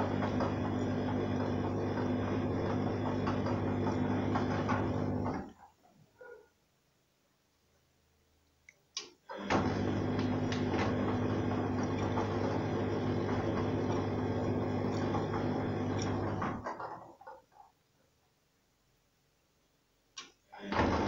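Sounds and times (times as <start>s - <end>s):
washing machine motor hum: 0.0s - 6.4s, 9.2s - 17.6s, 20.5s - 21.0s.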